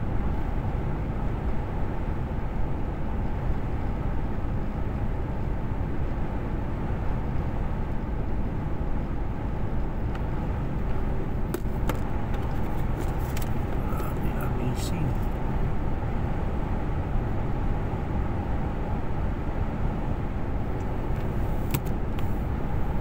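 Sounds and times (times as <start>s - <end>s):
road noise: 0.0s - 23.0s
truck engine rumble: 8.5s - 18.2s, 19.8s - 23.0s.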